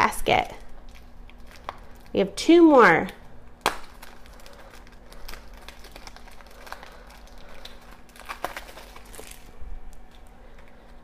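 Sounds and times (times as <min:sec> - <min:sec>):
plastic wrapping crinkling: 0:00.2 - 0:02.2, 0:03.2 - 0:11.0.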